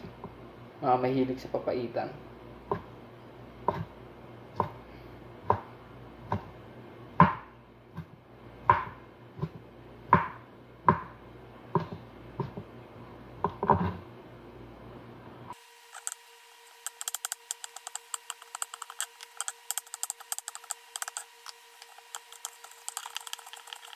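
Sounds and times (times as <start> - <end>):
knife chopping on cutting board: 8.7 - 9.6, 16.8 - 23.8.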